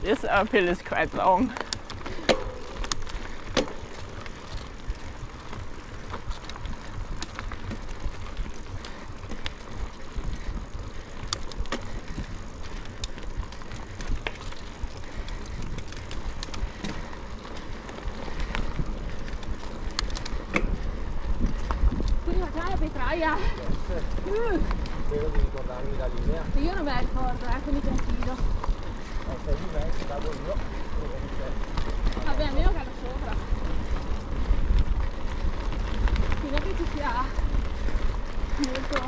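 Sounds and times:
bike tyre and drivetrain noise: 0:00.0 - 0:39.0
sharp clicks and rattles: 0:00.0 - 0:39.0.

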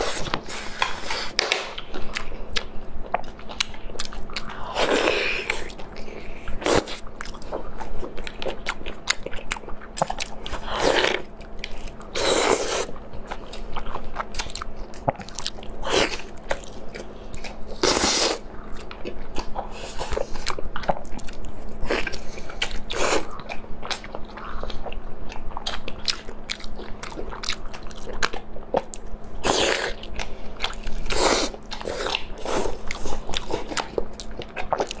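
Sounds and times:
faint steady hum: 0:00.0 - 0:35.0
wet chewing and lip smacks: 0:00.3 - 0:04.6, 0:29.8 - 0:35.0.

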